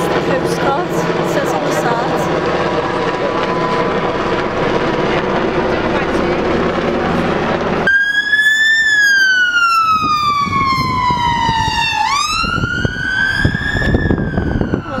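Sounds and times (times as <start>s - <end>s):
helicopter rotor noise: 0.0s - 15.0s
road traffic: 0.0s - 15.0s
ambulance siren wailing: 2.7s - 4.7s, 7.8s - 15.0s.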